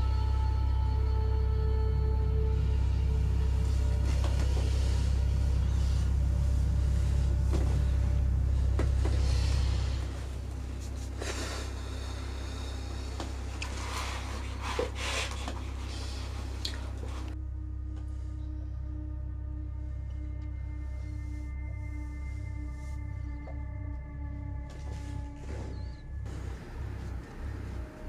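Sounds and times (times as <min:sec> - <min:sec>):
low drone film score: 0:00.0 - 0:28.0
rustling: 0:03.4 - 0:17.4.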